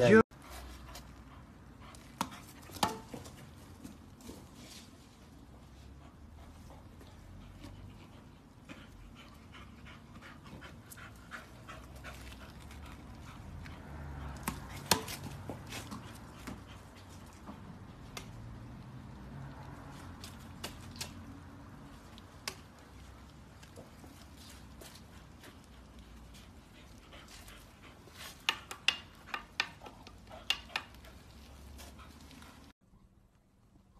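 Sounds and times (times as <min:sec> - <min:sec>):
dog panting: 0:05.7 - 0:17.8, 0:22.8 - 0:32.7.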